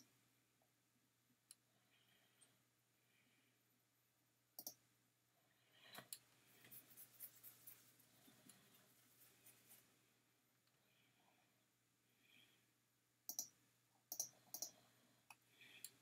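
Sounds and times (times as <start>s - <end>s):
computer mouse clicks: 4.6s - 4.8s, 13.3s - 16.0s.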